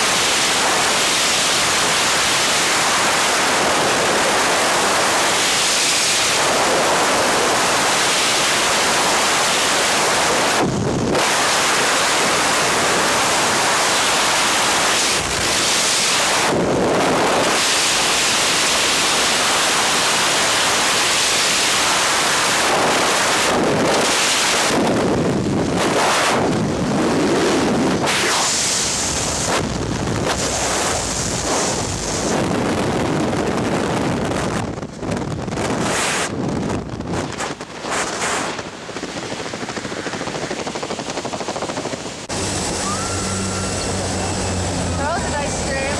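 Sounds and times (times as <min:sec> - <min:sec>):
freefall wind buffeting microphone: 0:00.0 - 0:45.9.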